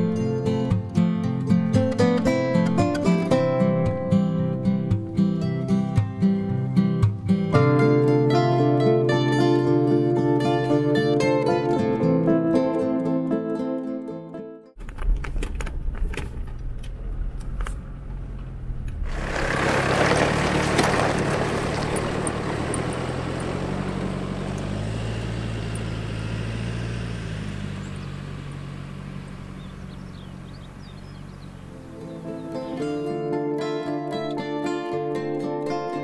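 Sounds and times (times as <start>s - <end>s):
vehicle engine running: 14.8s - 33.3s.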